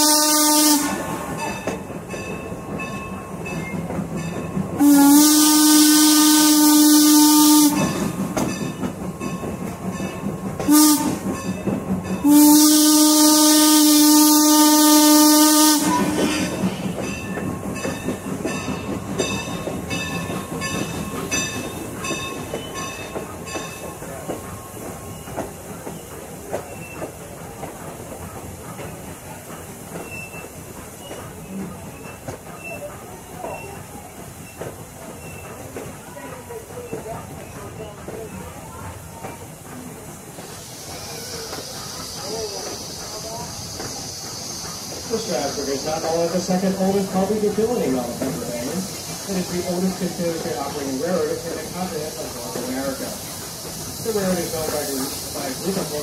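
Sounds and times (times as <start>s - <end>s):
steam whistle blasts: 0.0s - 1.2s, 4.8s - 8.0s, 10.6s - 11.2s, 12.2s - 16.6s
rush of steam: 0.0s - 56.0s
train wheels clicking on rail joints: 0.0s - 56.0s.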